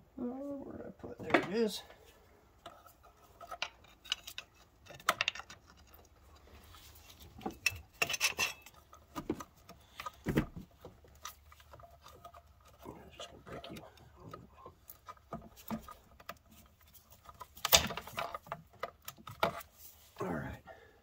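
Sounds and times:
metal tools clinking and tapping: 7.4 - 9.0.

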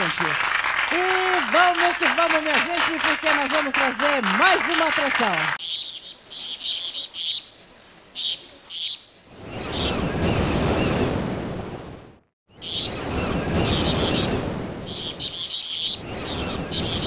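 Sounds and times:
birds chirping: 0.0 - 11.0, 12.5 - 17.0
ocean surf: 12.8 - 15.4.

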